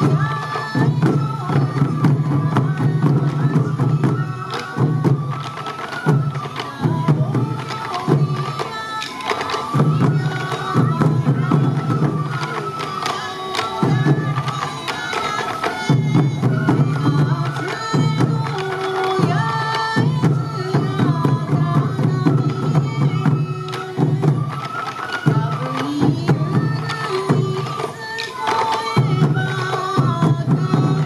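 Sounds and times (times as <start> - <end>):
bamboo flute melody: 0.0 - 31.0
taiko drums beating: 0.0 - 31.0.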